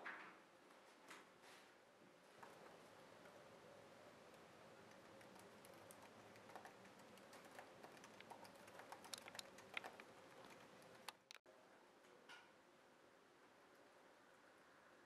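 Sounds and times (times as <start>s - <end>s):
low room hum: 0.1s - 15.0s
laptop keyboard typing: 4.8s - 11.4s.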